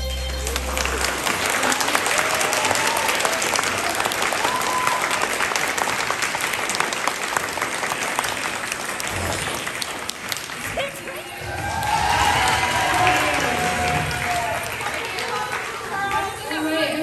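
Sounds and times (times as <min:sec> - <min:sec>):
dance music: 0:00.0 - 0:01.6
audience clapping and cheering: 0:00.0 - 0:17.0
voiced whoops: 0:01.6 - 0:05.3, 0:11.3 - 0:14.9.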